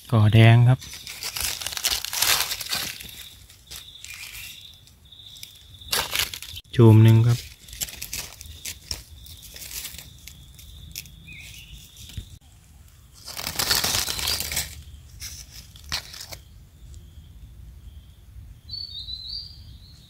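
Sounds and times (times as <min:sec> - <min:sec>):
bird chirping: 0:00.1 - 0:20.0
dry leaves rustling and crunching: 0:00.7 - 0:16.4
twigs clicking: 0:00.8 - 0:16.4.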